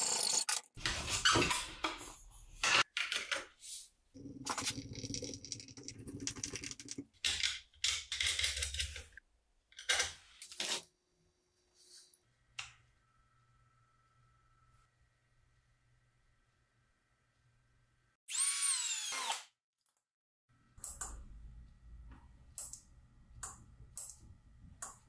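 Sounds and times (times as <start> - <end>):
workshop handling squeaks and scrapes: 0.8 - 1.8.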